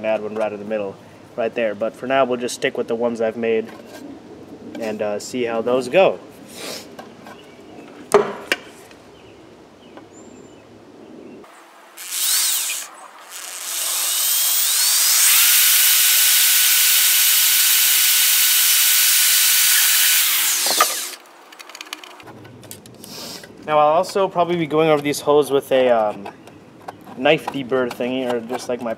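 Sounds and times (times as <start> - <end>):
electric drill whining: 12.0 - 21.2
drill handling clicks: 19.7 - 22.3.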